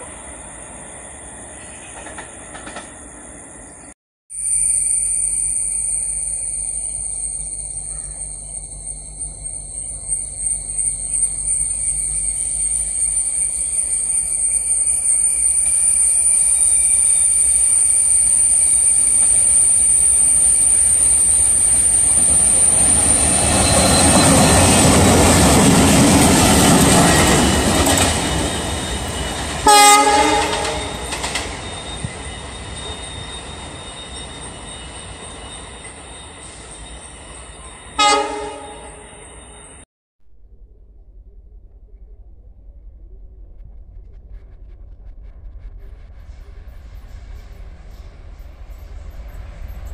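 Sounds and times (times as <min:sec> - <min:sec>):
locomotive engine and wheel rumble: 0:04.8 - 0:37.9
train horn blast: 0:29.6 - 0:31.2, 0:38.0 - 0:39.3.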